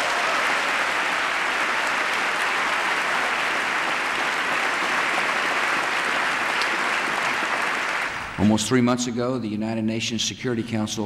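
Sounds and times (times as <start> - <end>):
large audience clapping: 0.0 - 8.5.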